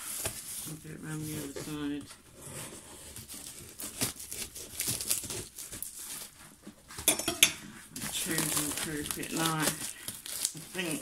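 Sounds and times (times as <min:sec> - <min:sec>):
knife cutting tape and cardboard: 0:02.6 - 0:06.2
tape tearing and crinkling: 0:03.0 - 0:06.6, 0:08.0 - 0:11.0.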